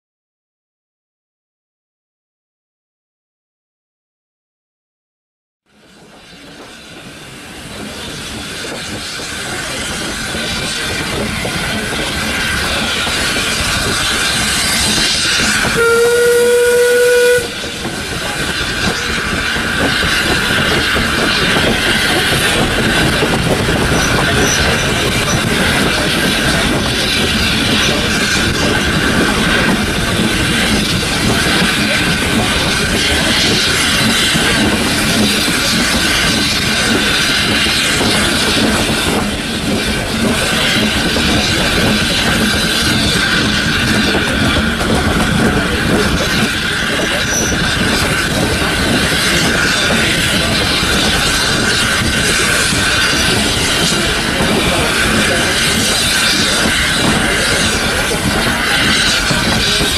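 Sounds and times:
train wheel and rail noise: 5.7 - 59.9
steam whistle: 15.6 - 17.8.

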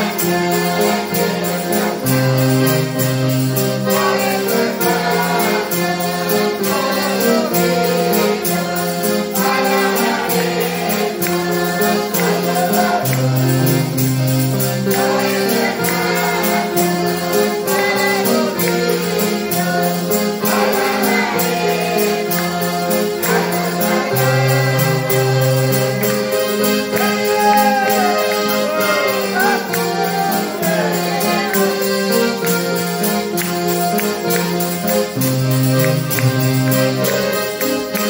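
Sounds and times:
piano accordion: 0.0 - 38.0.

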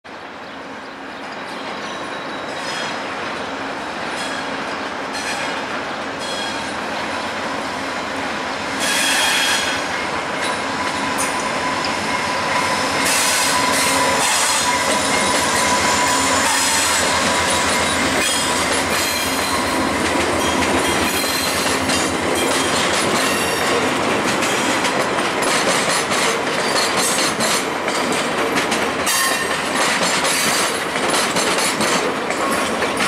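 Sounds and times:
train rumbling over tracks: 0.1 - 33.0
wheels squealing high-pitched: 8.8 - 23.7.

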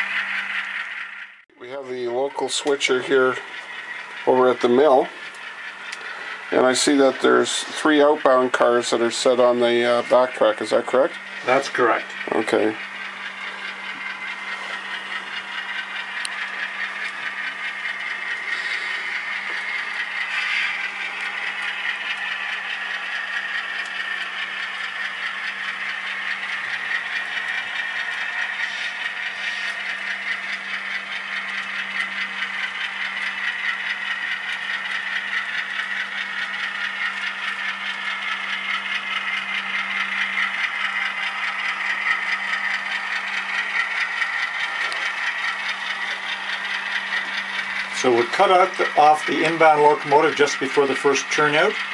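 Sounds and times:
high whine of locomotive: 0.0 - 51.9
model train wheels rattling on rail: 0.0 - 51.9
steady low hum: 0.0 - 51.9.

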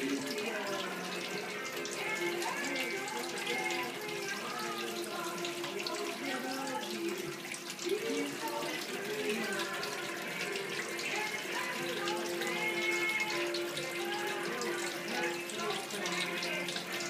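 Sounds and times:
water pouring into metal sink: 0.0 - 17.0.

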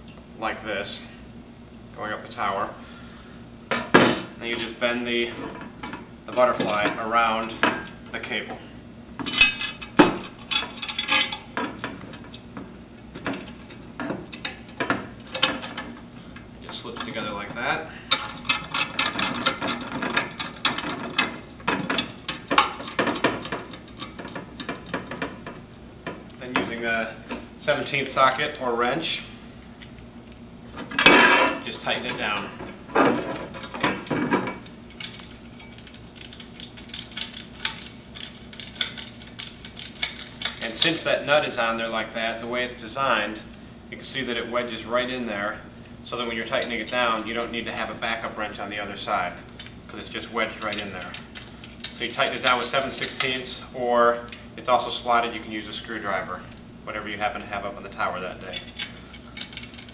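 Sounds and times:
socket wrench clanking on metal: 5.4 - 8.0, 9.2 - 12.4, 18.1 - 26.7, 28.0 - 28.6, 30.8 - 40.9, 58.4 - 59.9
metal cable hanger clicking and scraping: 9.2 - 11.5, 18.1 - 25.1, 28.0 - 28.6, 30.9 - 41.0, 58.4 - 59.9.

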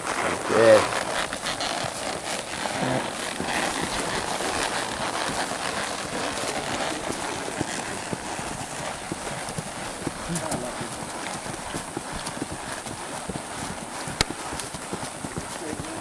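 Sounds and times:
hoof thuds: 0.0 - 16.0
steady rustling: 0.0 - 16.0.

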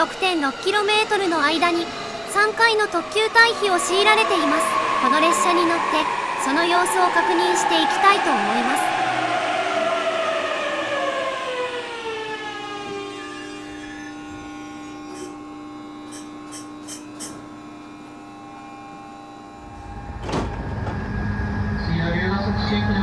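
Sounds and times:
electric train motor whine: 0.0 - 23.0
low rumble: 19.6 - 23.0.

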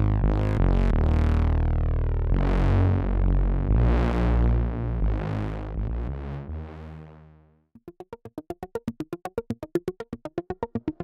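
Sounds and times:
synthesizer bass notes: 0.0 - 11.0
arpeggiated synth plucks: 7.8 - 11.0.

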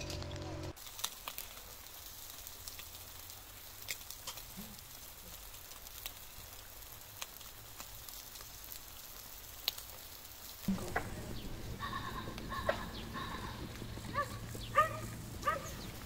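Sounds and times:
chicken wings sizzling on grill: 0.0 - 16.0
grill crackles and pops: 0.0 - 16.0
low rumble: 10.7 - 16.0.

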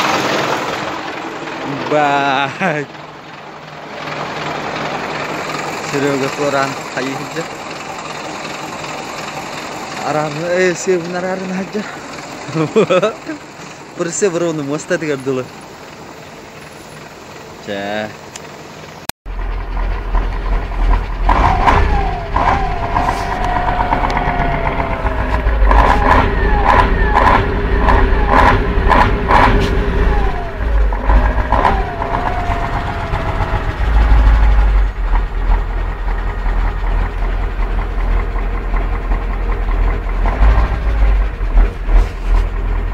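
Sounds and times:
engine rumbling: 0.0 - 42.9
whine falling in pitch: 21.5 - 35.1.

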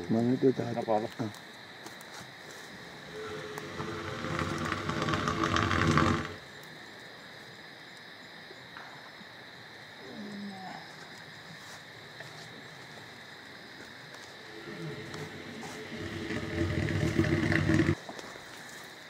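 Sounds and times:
elephant roaring: 2.8 - 6.4, 14.5 - 18.0.

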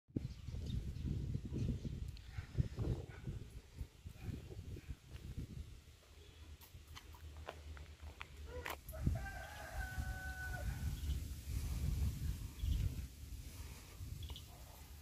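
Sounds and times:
rooster crowing: 8.5 - 11.0.

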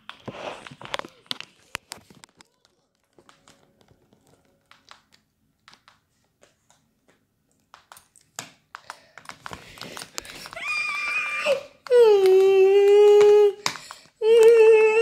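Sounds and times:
faint clicks and taps: 0.0 - 11.2.

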